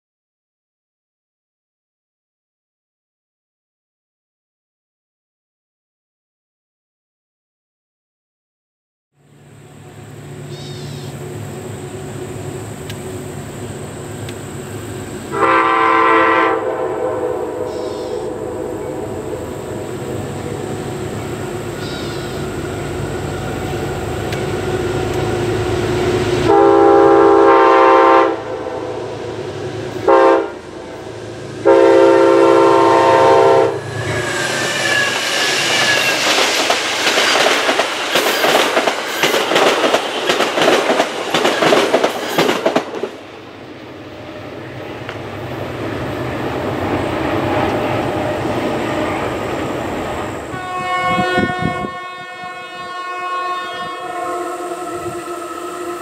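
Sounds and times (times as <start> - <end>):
train horn: 15.3 - 36.5, 50.4 - 56.0
train wheels clattering on rails: 34.6 - 43.3.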